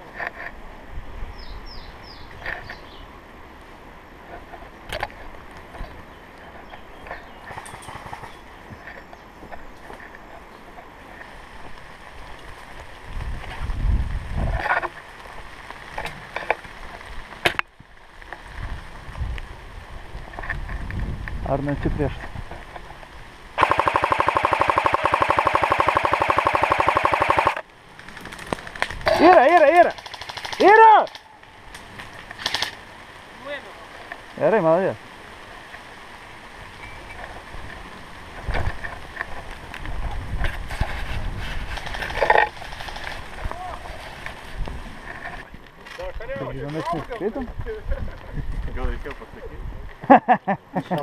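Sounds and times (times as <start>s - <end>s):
scattered clicks: 23.6s - 32.8s
clothing and brush rustling: 37.0s - 46.1s.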